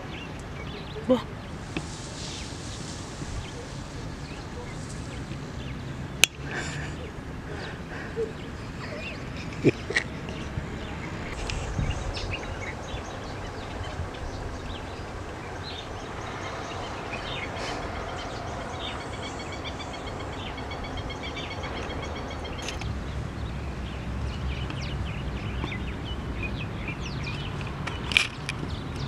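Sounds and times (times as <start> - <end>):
birds chirping: 0.0 - 29.0
low rumble: 0.6 - 19.0.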